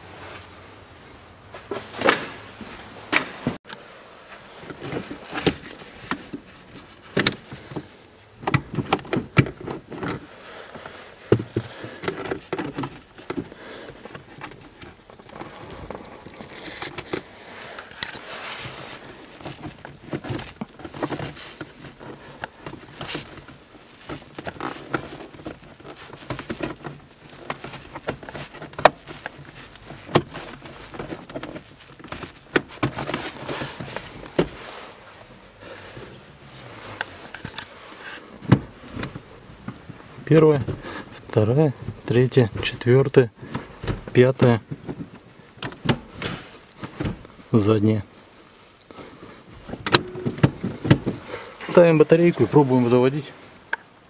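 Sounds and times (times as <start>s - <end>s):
clicks and knocks of car trim: 43.4s - 47.4s.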